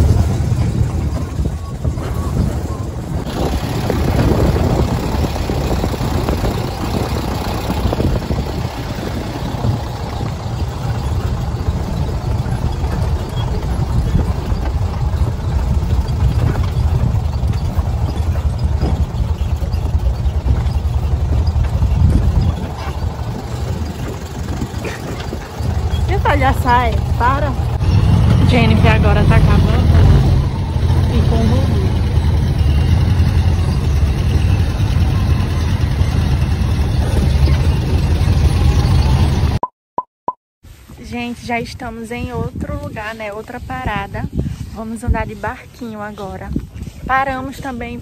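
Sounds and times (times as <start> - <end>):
buggy engine running: 0.0 - 39.6
wind rumbling on microphone: 0.0 - 39.6, 40.7 - 48.0.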